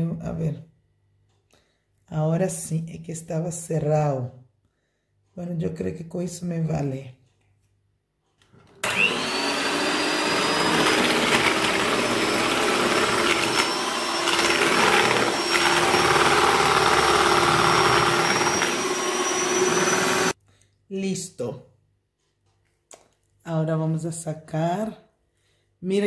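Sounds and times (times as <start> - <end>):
electric mixer whining: 8.7 - 20.4.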